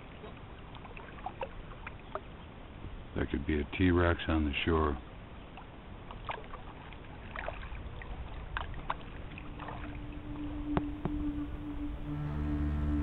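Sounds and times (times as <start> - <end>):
paddle splashing in water: 0.0 - 2.8, 5.4 - 12.0
moving water murmur: 0.0 - 13.0
held low music note: 9.3 - 13.0.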